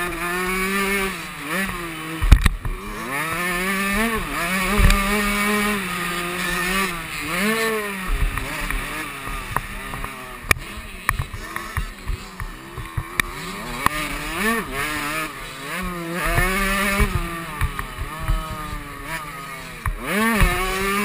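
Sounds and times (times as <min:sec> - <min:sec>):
two-stroke motorbike engine revving: 0:00.0 - 0:21.0.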